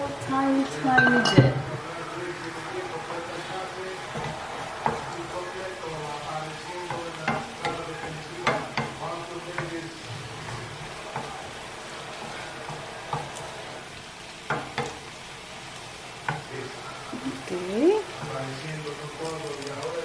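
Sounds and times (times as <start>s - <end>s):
vegetables sizzling in a frying pan: 0.0s - 20.0s
wooden spatula scraping a pan: 2.1s - 13.8s.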